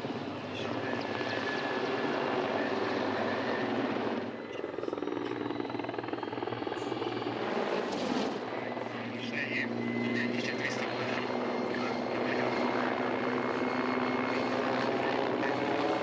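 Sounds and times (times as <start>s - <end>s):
helicopter rotor chop: 0.0s - 16.0s
turbine engine whine: 0.0s - 16.0s.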